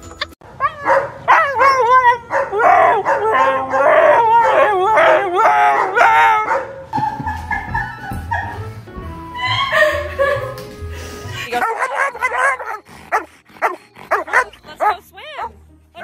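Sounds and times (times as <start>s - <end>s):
dog howling: 0.6s - 8.6s.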